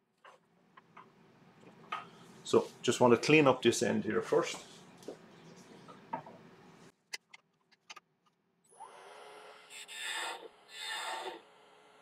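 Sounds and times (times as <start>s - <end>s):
wood lathe motor whine: 8.7s - 12.0s
gouge cutting wood: 9.0s - 11.5s.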